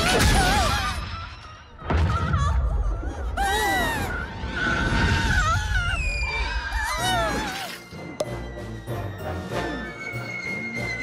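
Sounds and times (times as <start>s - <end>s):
cartoon background music: 5.7s - 11.0s.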